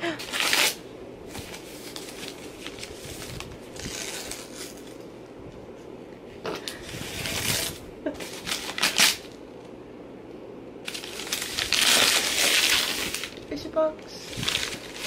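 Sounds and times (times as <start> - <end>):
paper wrapping tearing and crinkling: 0.0 - 5.1, 6.6 - 9.4, 10.9 - 13.4, 14.2 - 15.0.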